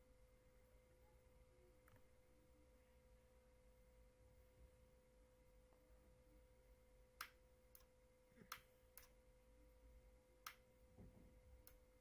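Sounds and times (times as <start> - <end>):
faint steady hum: 0.0 - 12.0
toggle switch and mouse clicks: 7.2 - 9.2, 10.4 - 10.7, 11.6 - 11.9.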